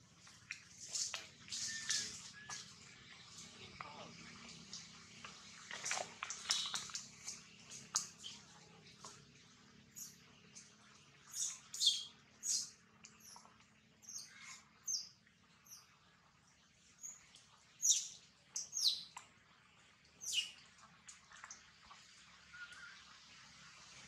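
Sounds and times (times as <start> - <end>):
birds chirping: 6.2 - 8.5, 9.8 - 16.0.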